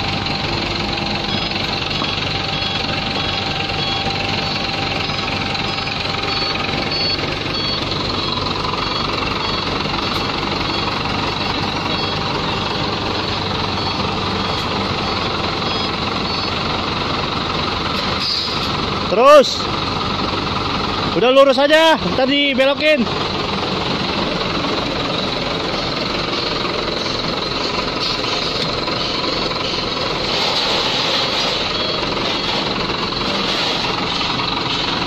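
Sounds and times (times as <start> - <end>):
diesel engine knocking: 0.0 - 35.0
two-tone electronic beep: 1.2 - 16.6, 25.7 - 27.7, 29.0 - 32.8.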